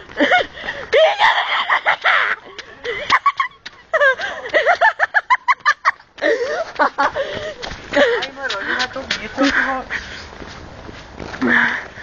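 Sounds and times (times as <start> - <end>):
laughing yelps: 0.3 - 7.1.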